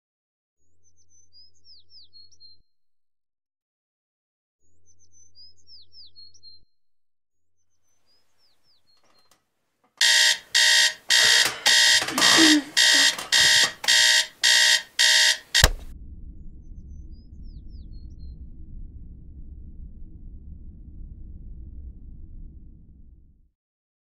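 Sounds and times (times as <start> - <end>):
alarm switch click: 10.0 - 15.9
digital alarm clock beeping: 10.0 - 15.9.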